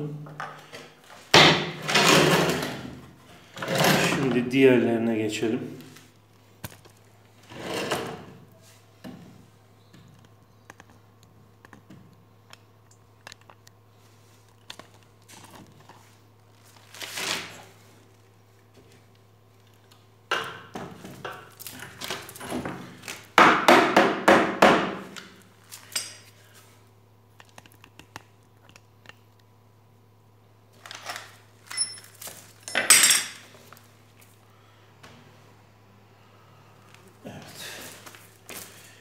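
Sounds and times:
steady low hum: 0.0s - 39.0s
knocks on wooden chair frame: 1.4s - 1.8s, 23.4s - 25.1s.

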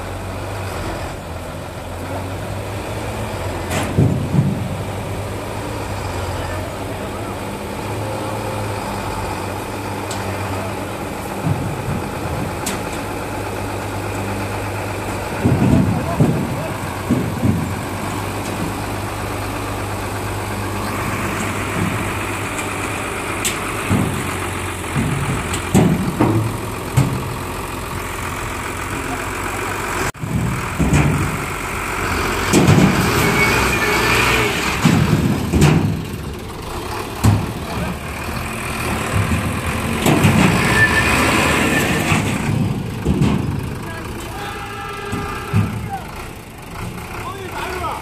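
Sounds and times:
diesel truck engine idling: 0.0s - 48.0s
people's voices: 6.0s - 19.8s, 28.2s - 30.1s, 36.9s - 48.0s.

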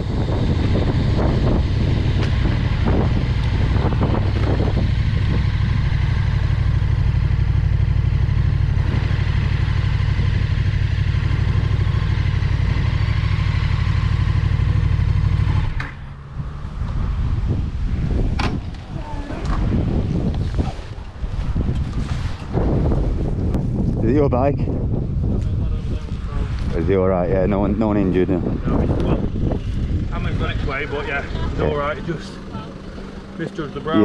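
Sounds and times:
motorcycle engine running: 0.0s - 20.3s
motorcycle clattering on road: 2.0s - 16.2s.

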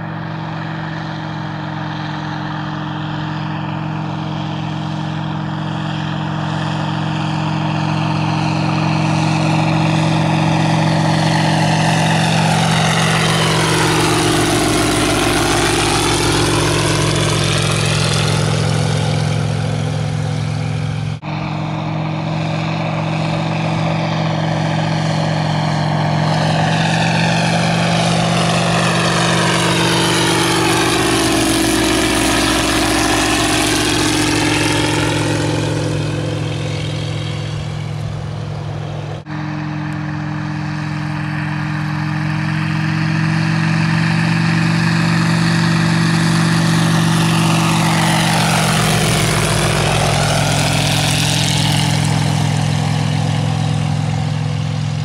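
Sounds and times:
propeller plane engine passing by: 0.0s - 55.0s.

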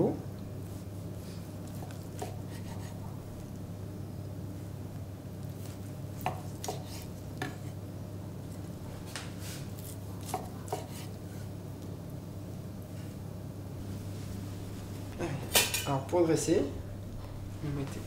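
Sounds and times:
steady low hum: 0.0s - 18.0s
knife scraping: 0.8s - 3.0s, 5.6s - 7.8s, 9.4s - 11.5s.

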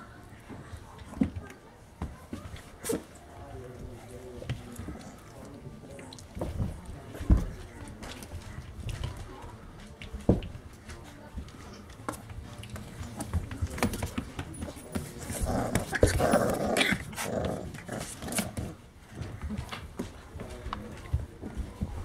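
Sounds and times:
puppies growling: 14.6s - 19.3s.

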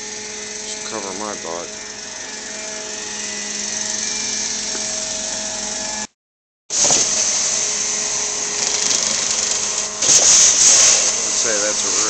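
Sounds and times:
thin whine: 0.0s - 6.1s, 6.7s - 12.0s
vacuum rushing hiss: 6.7s - 12.0s
wand spraying and sucking water: 6.7s - 12.0s.

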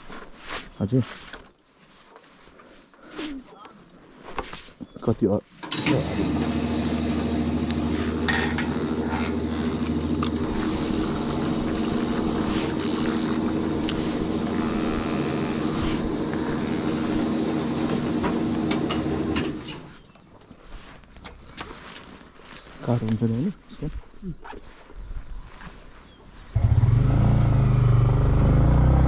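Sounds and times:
fuel flowing into tank: 5.7s - 14.6s, 15.4s - 19.9s
fuel pump motor humming: 5.7s - 19.9s.

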